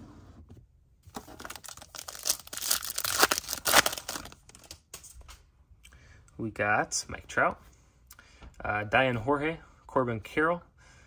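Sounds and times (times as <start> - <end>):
foil wrapper tearing and crinkling: 1.1 - 4.8.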